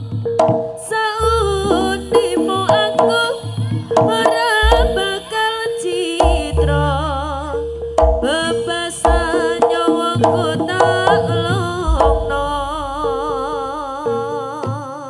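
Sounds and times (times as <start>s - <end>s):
deep low drum strokes: 0.0s - 5.2s, 6.2s - 14.2s
hand drum strokes: 0.0s - 7.1s, 8.0s - 12.8s
high melody with wavering vibrato: 0.0s - 15.0s.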